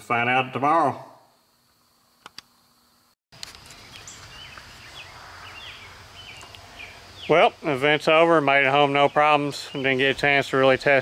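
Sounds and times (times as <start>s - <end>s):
steady background hiss: 0.0s - 11.0s
small birds chirping: 3.6s - 11.0s.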